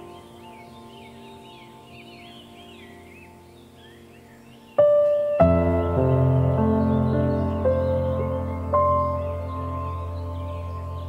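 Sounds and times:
chirping bird-like glides: 0.0 - 11.0
soft background music: 0.0 - 11.0.

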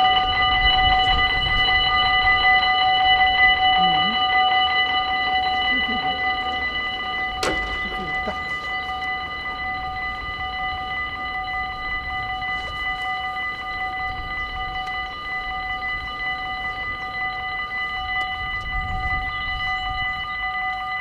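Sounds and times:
level crossing bell ringing: 0.0 - 21.0.

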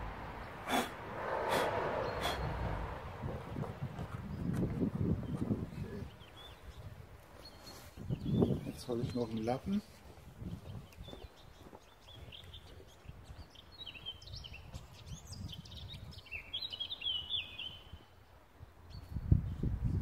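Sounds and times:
low rumbling background: 0.0 - 6.4
songbird chirping: 0.0 - 19.7.

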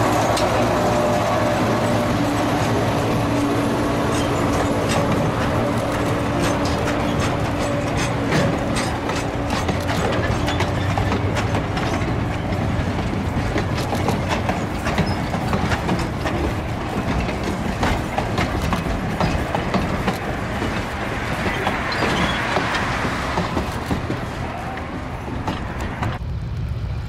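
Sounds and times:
train wheels rolling on rails: 0.0 - 27.0.

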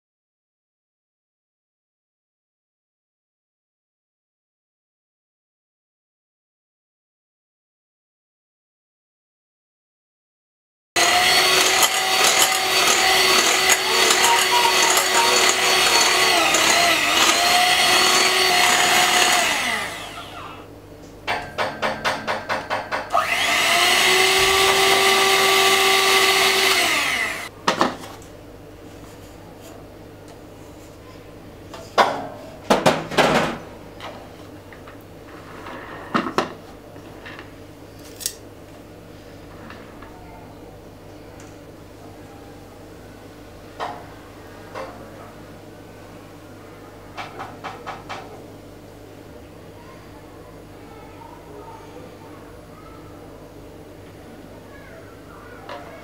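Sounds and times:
electric hand mixer whirring: 11.0 - 20.7, 23.1 - 27.5
utensils knocking on counter: 11.5 - 19.3, 21.3 - 23.1.

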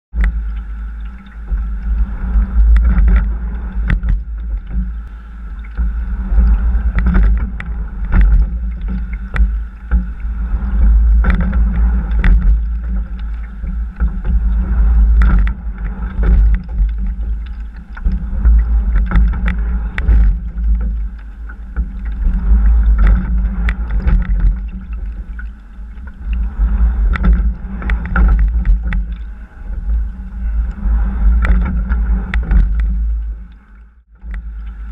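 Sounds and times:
heavy low rumble: 0.1 - 34.9
oars clicking in oarlocks: 0.1 - 34.9
water rushing along boat hull: 0.1 - 34.9.

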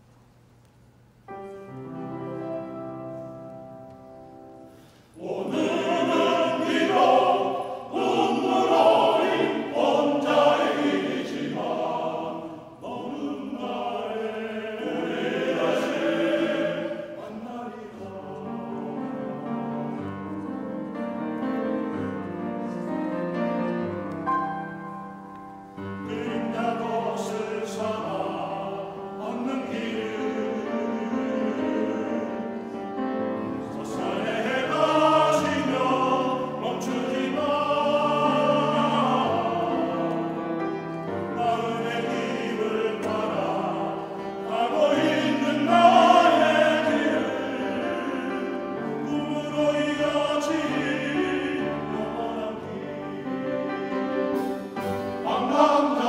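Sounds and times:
grand piano accompaniment: 1.2 - 56.0
men's choir singing: 5.1 - 20.0, 26.0 - 56.0.

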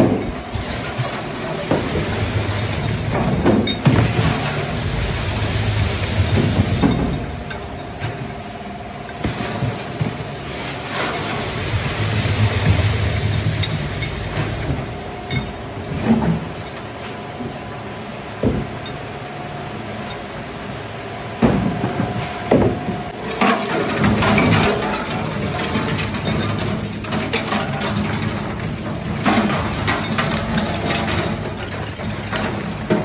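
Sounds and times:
metal shredder running: 0.0 - 17.6, 21.3 - 33.0
metal shavings crunching: 23.2 - 33.0.

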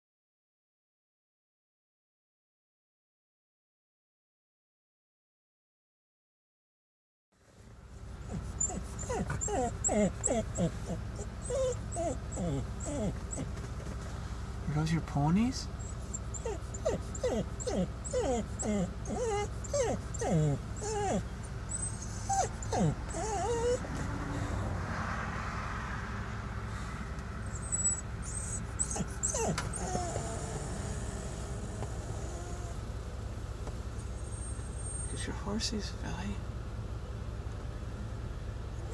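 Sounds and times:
small dog whimpering: 8.2 - 13.6, 15.8 - 24.6, 27.4 - 32.9, 34.0 - 35.3.

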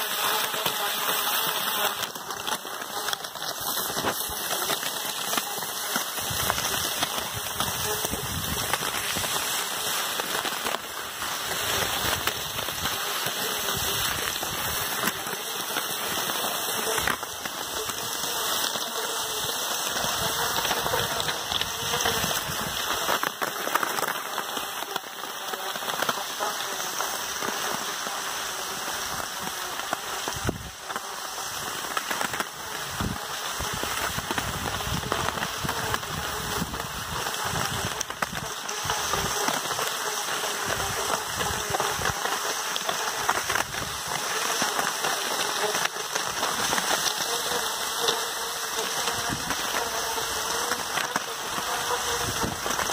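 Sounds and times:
paws crunching in snow: 0.0 - 24.9
skis gliding over packed snow: 0.0 - 52.9.

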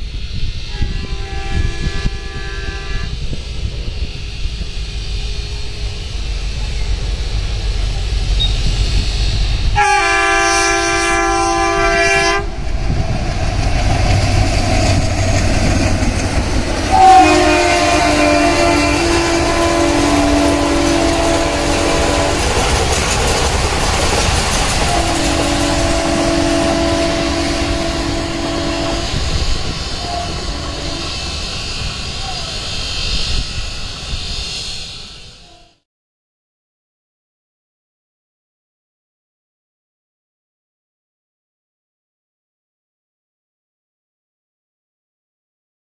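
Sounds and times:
low rumble of train: 0.0 - 35.8
locomotive horn blast: 0.7 - 3.3, 9.7 - 12.5, 14.6 - 23.1, 24.7 - 32.5.

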